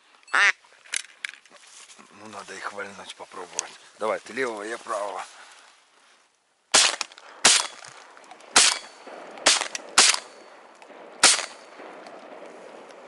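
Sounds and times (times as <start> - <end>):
shotgun shots: 6.7 - 13.0.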